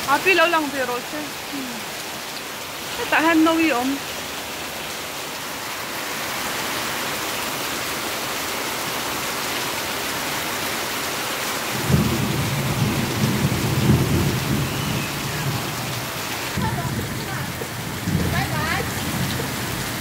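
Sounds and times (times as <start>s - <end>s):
heavy rain falling: 0.0s - 20.0s
low rumble of thunder: 11.8s - 20.0s.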